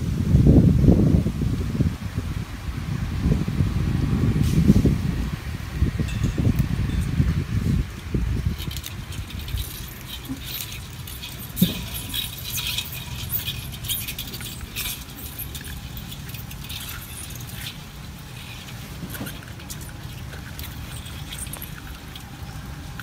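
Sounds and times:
crabs scrabbling in steel bowl: 8.4s - 23.0s.

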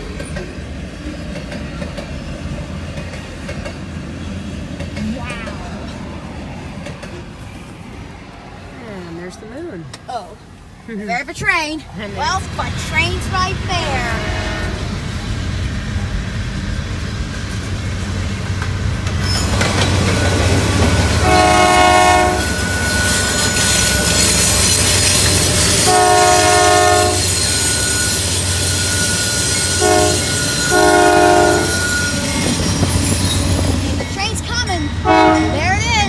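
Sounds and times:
locomotive horn blasts: 13.9s - 15.0s, 21.2s - 22.7s, 25.7s - 27.4s, 29.5s - 32.1s, 35.0s - 35.9s.

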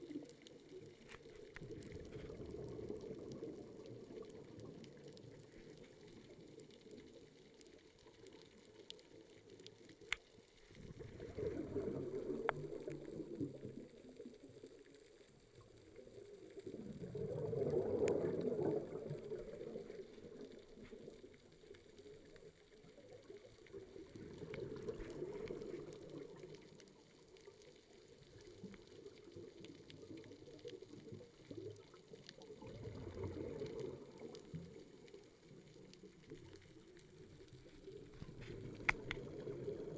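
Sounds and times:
faint sharp clicks: 0.0s - 10.8s, 12.2s - 13.6s, 17.4s - 39.9s
underwater bubbles gurgling: 0.0s - 39.9s.

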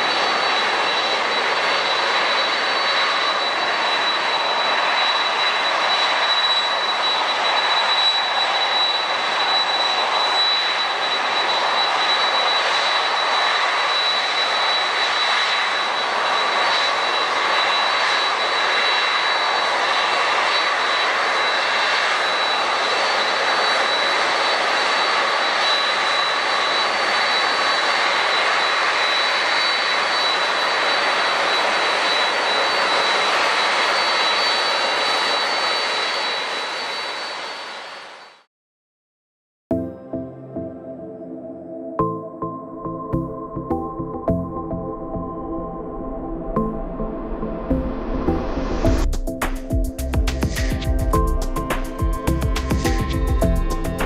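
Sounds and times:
jet engines roaring with whine: 0.0s - 38.5s, 39.8s - 54.0s.

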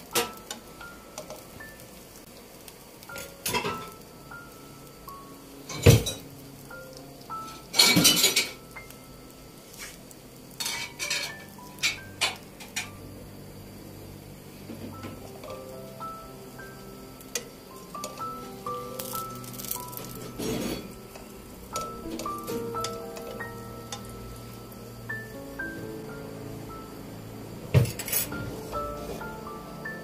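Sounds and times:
metal fork scraping frying pan: 10.6s - 12.0s.

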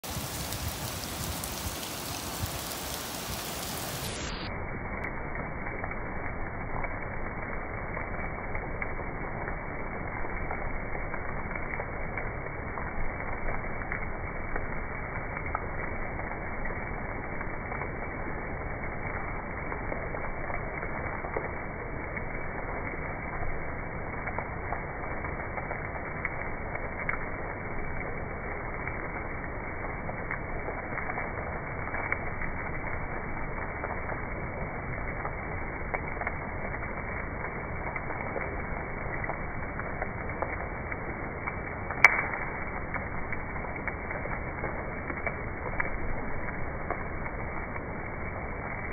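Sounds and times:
steady hiss: 0.0s - 4.9s
crackles and pops: 0.0s - 48.9s
muffled hiss: 0.0s - 48.9s.

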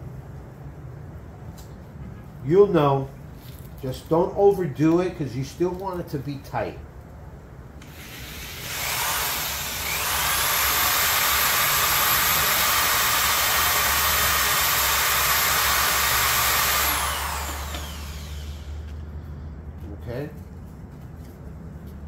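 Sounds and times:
electric drill whining: 7.8s - 19.1s.

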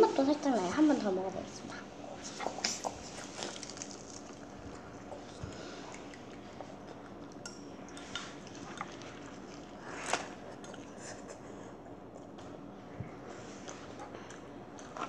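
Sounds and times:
chewing crispy pastry: 2.3s - 12.7s, 13.5s - 15.0s.

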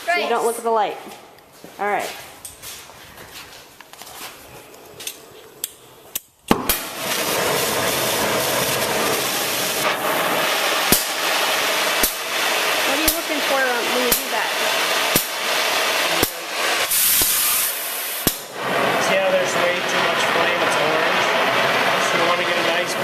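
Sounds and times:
cutting torch popping alight: 4.8s - 23.0s
torch flame hissing: 5.1s - 23.0s.

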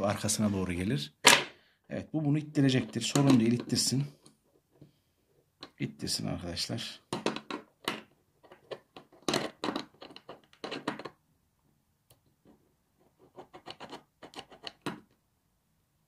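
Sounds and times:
metal lock parts clicking and scraping: 7.2s - 11.2s.

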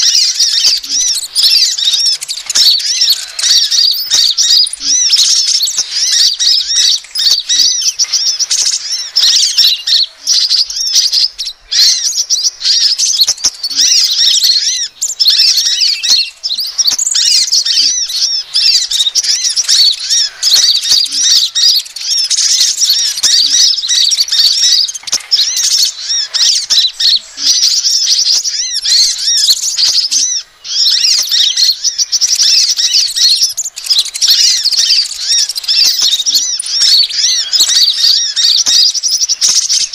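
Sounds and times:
birds chirping and trilling: 0.0s - 39.9s.

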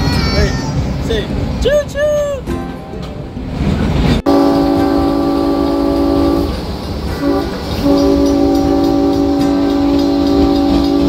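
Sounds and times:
locomotive air horn blasts: 4.3s - 11.0s.

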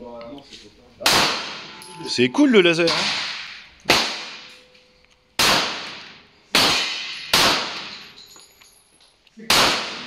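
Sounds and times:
pistol shots ringing out: 1.0s - 1.8s, 2.8s - 4.6s, 5.4s - 8.1s, 9.5s - 10.0s.

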